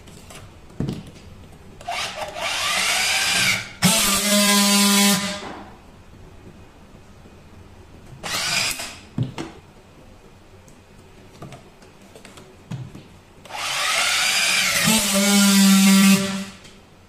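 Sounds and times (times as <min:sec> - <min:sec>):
strapping tool motor whir: 0:13.5 - 0:16.4.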